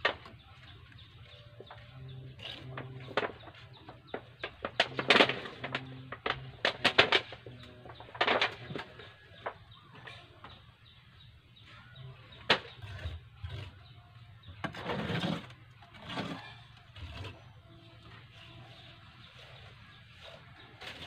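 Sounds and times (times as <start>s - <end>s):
trowel scraping wet cement: 1.7s - 4.2s, 14.6s - 17.6s, 18.7s - 21.0s.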